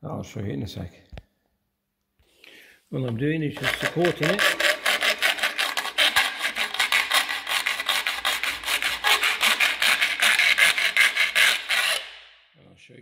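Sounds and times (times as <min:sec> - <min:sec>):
hand file rasping plastic: 0:03.5 - 0:12.3.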